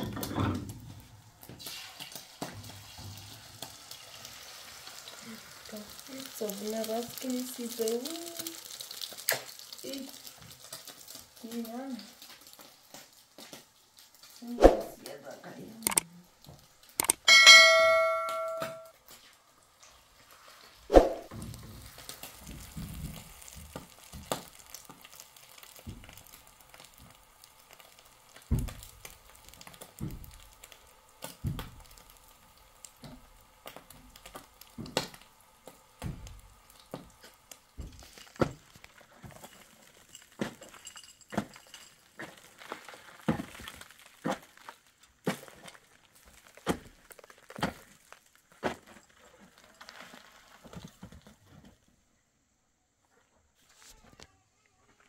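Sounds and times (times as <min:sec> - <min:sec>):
faint hiss: 0:00.0 - 0:17.0.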